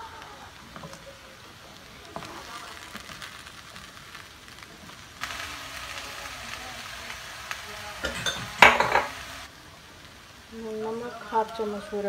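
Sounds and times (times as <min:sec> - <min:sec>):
light sizzle: 0:00.0 - 0:12.0
spoon scraping a pan: 0:08.0 - 0:09.4.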